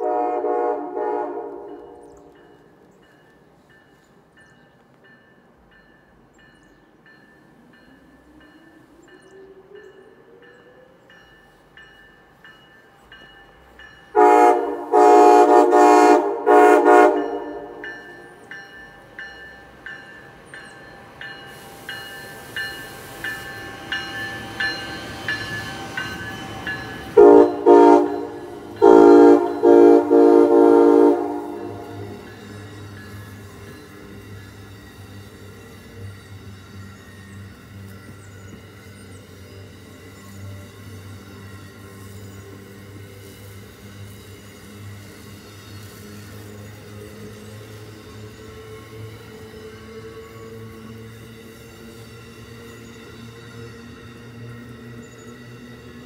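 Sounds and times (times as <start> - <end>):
train horn short blasts: 0.0 - 2.3, 14.1 - 17.8, 27.1 - 32.3
train rushing past: 0.0 - 56.0.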